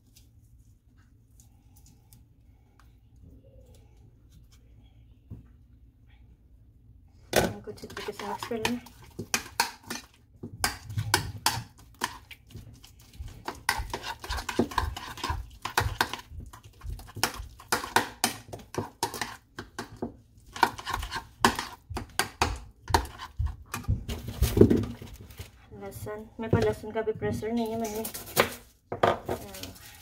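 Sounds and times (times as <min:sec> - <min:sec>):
metal spoon scraping ceramic bowl: 0:13.6 - 0:16.2.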